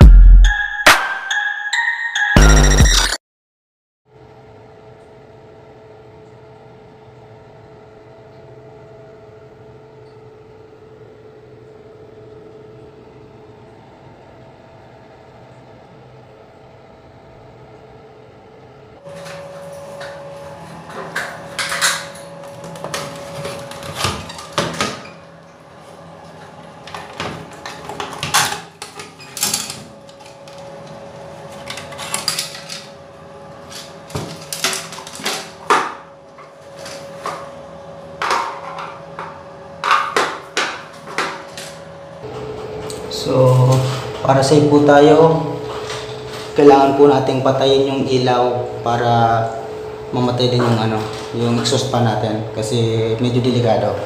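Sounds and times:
exhaust fan humming: 4.3s - 54.0s.

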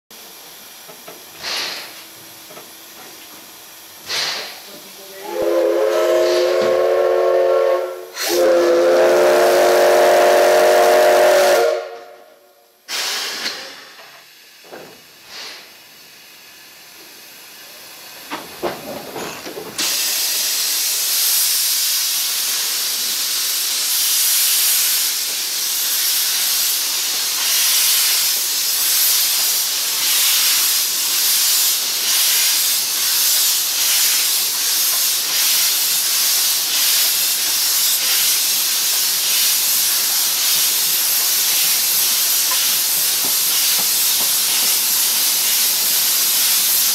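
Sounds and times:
steam hissing: 0.1s - 46.9s
steam locomotive whistle: 5.1s - 13.4s.

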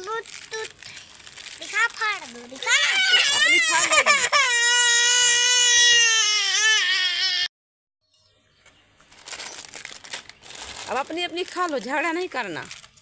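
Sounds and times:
young child crying: 2.6s - 7.5s.

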